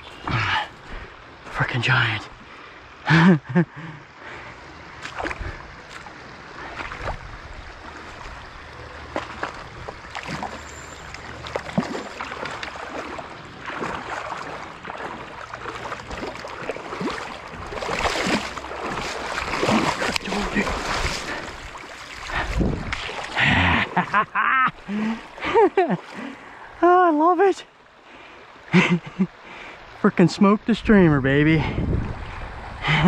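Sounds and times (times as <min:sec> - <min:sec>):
running stream water: 0:00.0 - 0:33.0
fish splashing and thrashing: 0:05.0 - 0:26.5.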